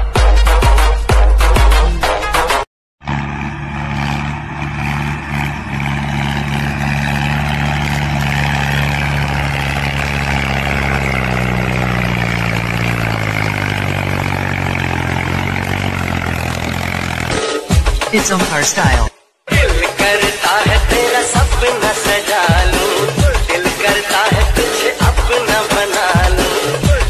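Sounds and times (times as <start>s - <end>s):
diesel tractor engines under load: 3.0s - 19.1s.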